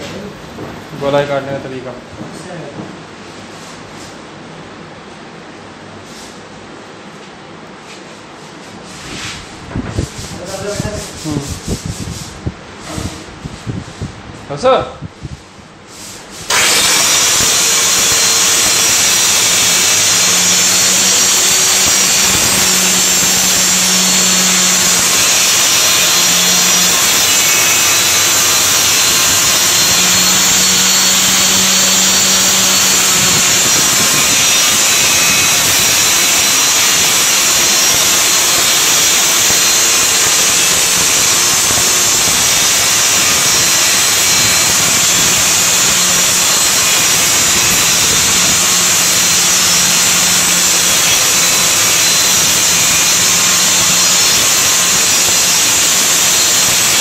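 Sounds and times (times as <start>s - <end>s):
circular saw cutting plywood: 16.4s - 57.0s.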